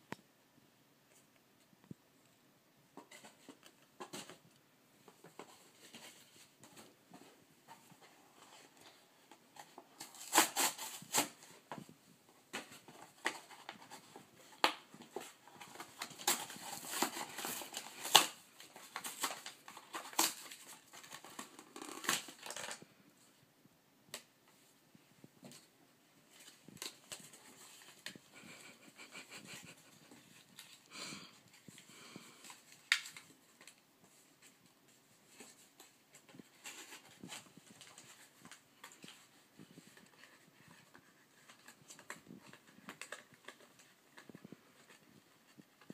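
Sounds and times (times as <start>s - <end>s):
paper mailer rustling and crinkling: 5.0s - 22.8s.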